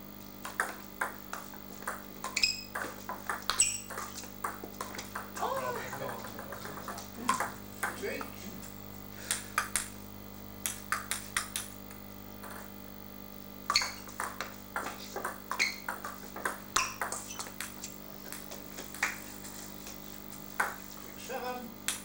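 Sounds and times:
table tennis ball clicking: 0.4s - 8.0s, 10.6s - 12.7s, 13.7s - 18.4s.

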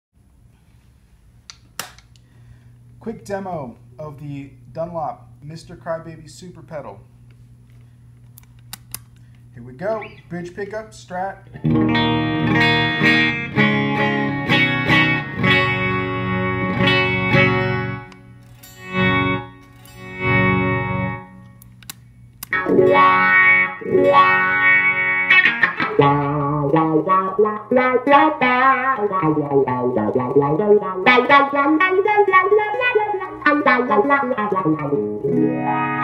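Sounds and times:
electric guitar with wah pedal: 9.8s - 10.6s, 11.5s - 21.6s, 22.4s - 36.0s.

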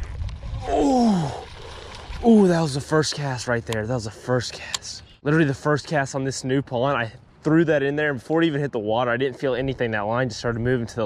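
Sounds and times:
low wind rumble on microphone: 0.0s - 2.3s
man exclaiming ooh: 0.6s - 1.4s.

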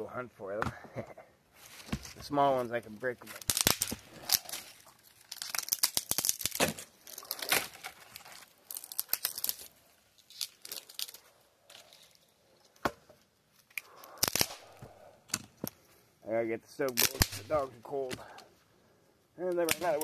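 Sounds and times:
rustling: 1.5s - 16.1s
dry branches snapping: 3.3s - 12.0s, 13.7s - 15.8s, 16.9s - 18.2s, 19.5s - 20.0s.

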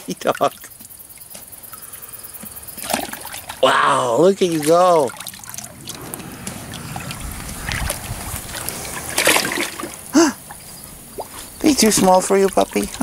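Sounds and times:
dog splashing in water tank: 2.8s - 10.1s, 11.1s - 13.0s.

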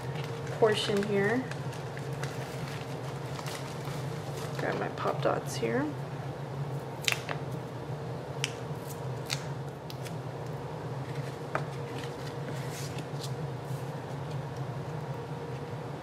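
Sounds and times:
paper clicks and crackles: 0.0s - 4.8s
steady low hum: 0.0s - 16.0s.

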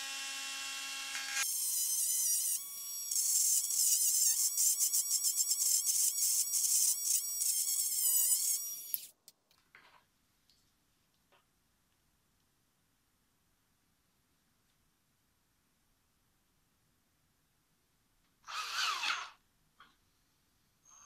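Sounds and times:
rotary tool grinding plastic: 1.4s - 9.1s.

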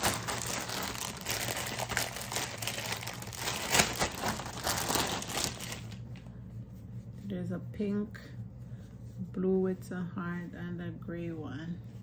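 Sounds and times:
plastic packaging crinkling: 0.0s - 6.3s.

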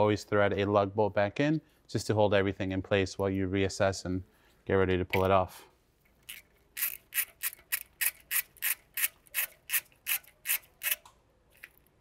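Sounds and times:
hand ratchet clicking: 6.2s - 11.8s.

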